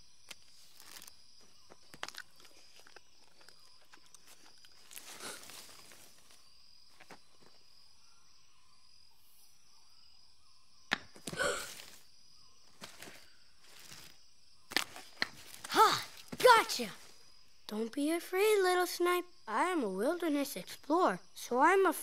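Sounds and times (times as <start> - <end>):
rustle: 3.9 - 7.7, 11.3 - 17.3.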